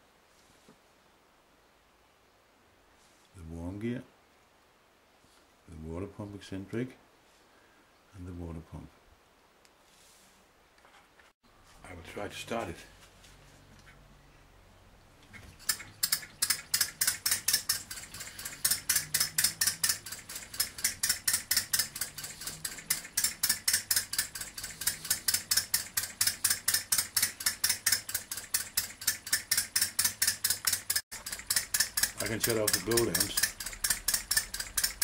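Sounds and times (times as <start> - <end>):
model engine clicking beat: 15.6 - 35.0.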